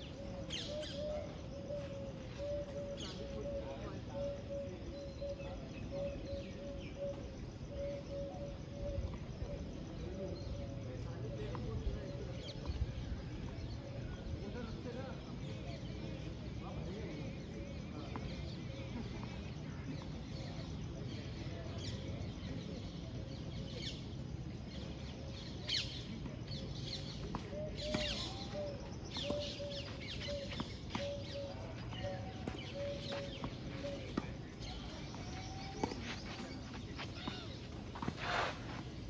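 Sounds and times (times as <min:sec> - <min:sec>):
outdoor background hum: 0:24.2 - 0:39.0.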